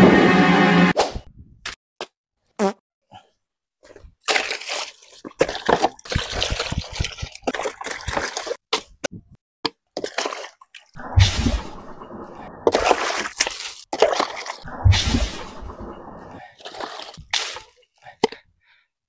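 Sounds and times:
stick pounding watermelon in water: 0:04.2 - 0:09.0.

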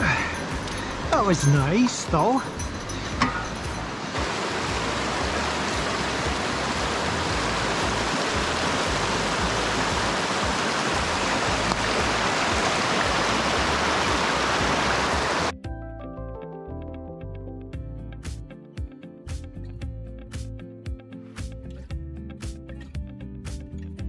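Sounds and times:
creek water rushing: 0:00.0 - 0:15.5
background music: 0:00.0 - 0:24.0.

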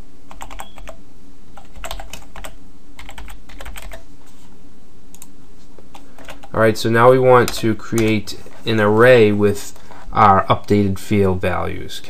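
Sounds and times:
steady low hum: 0:00.0 - 0:12.0
typing on computer keyboard: 0:00.3 - 0:01.0, 0:01.6 - 0:04.0, 0:05.9 - 0:06.6.

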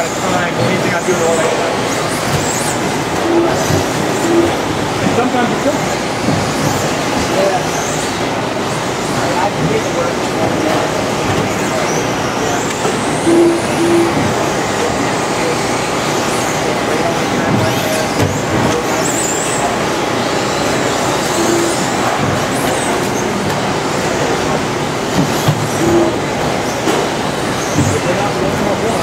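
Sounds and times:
short beeps: 0:03.2 - 0:04.7, 0:13.2 - 0:14.4, 0:21.3 - 0:21.9.

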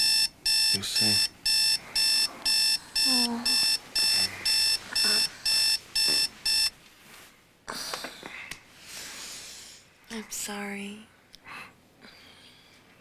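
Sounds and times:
alarm clock beeping: 0:00.0 - 0:06.8.

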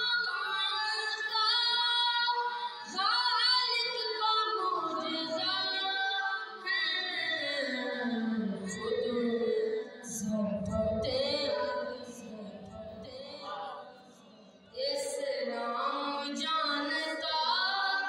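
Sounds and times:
boy singing unaccompanied: 0:00.0 - 0:13.7.

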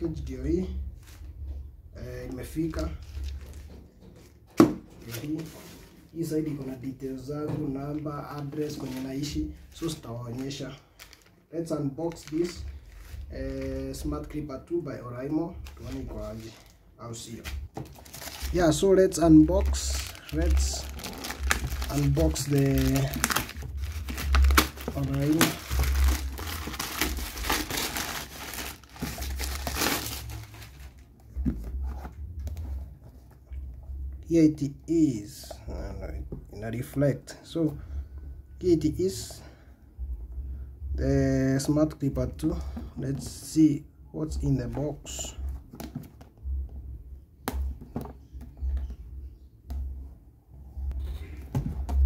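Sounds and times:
plastic bag crinkling: 0:08.7 - 0:11.4, 0:15.6 - 0:31.1.

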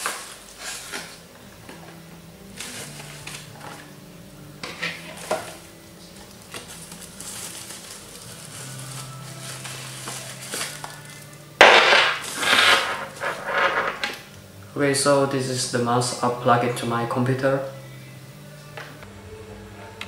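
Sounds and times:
packaging rustling and crinkling: 0:00.0 - 0:01.2, 0:02.6 - 0:03.8, 0:05.0 - 0:11.4.

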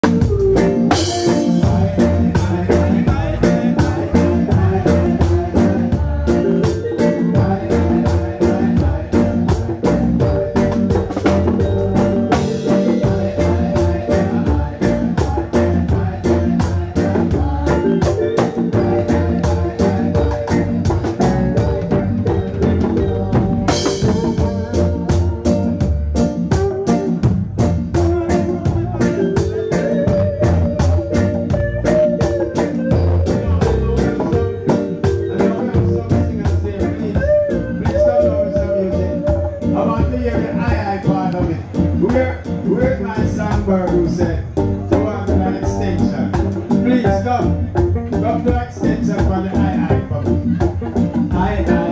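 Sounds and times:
drum kit: 0:00.0 - 0:51.9
electric guitar: 0:00.0 - 0:51.9
heavy bass line: 0:00.0 - 0:51.9
reggae band playing: 0:00.0 - 0:51.9.

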